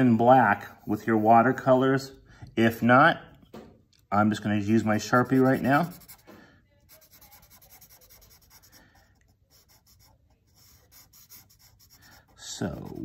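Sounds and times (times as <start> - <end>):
marker drawing on paper: 4.8 - 13.0.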